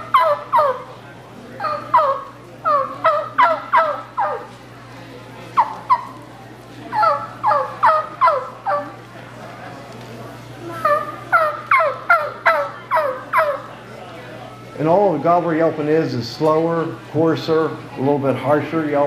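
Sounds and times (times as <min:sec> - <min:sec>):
turkey call yelping: 0:00.0 - 0:01.0, 0:01.6 - 0:04.6, 0:05.5 - 0:06.2, 0:06.9 - 0:09.0, 0:10.8 - 0:13.7.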